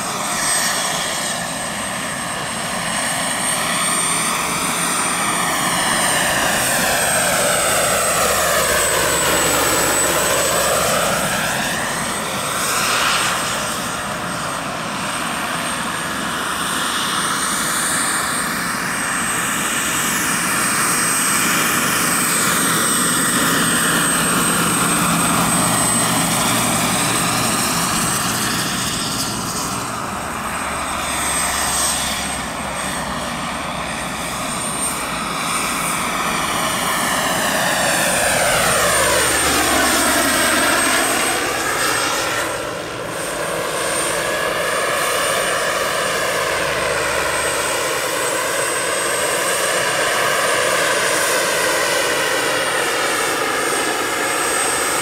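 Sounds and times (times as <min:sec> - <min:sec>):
helicopter rotor noise: 0:00.0 - 0:55.0
turbine whine: 0:00.0 - 0:55.0.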